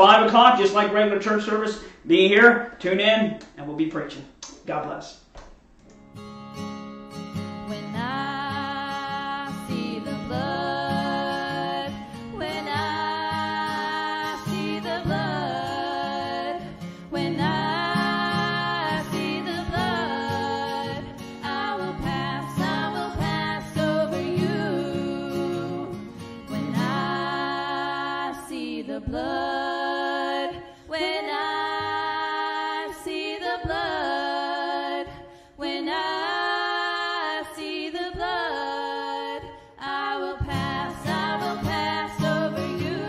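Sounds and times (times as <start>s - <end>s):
guitar accompaniment: 5.8s - 28.4s, 40.4s - 43.0s
person singing with vibrato: 7.7s - 43.0s.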